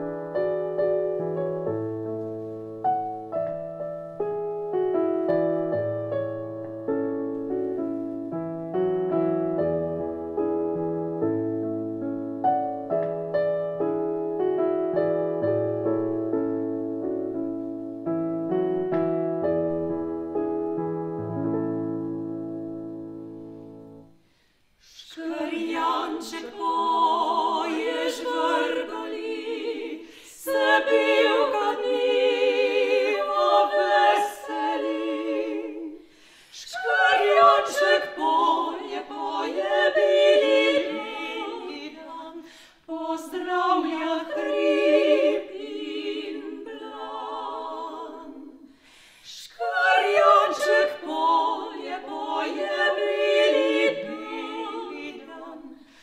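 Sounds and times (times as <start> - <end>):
women singing a cappella: 24.8 - 56.0.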